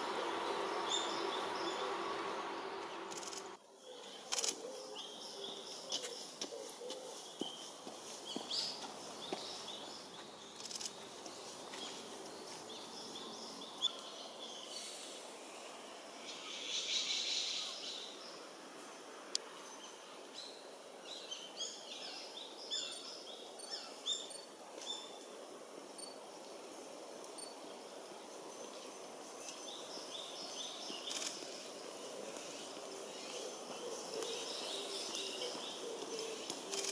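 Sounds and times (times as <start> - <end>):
small birds chirping: 0.0 - 18.5, 26.0 - 36.9.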